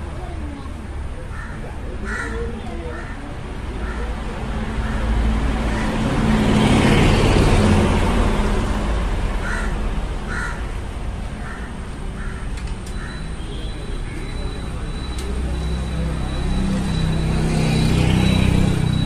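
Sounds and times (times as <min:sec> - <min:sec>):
crow cawing: 0:01.3 - 0:03.2, 0:09.4 - 0:10.7, 0:11.4 - 0:13.3
vehicle passing by: 0:03.2 - 0:11.3, 0:14.5 - 0:19.0.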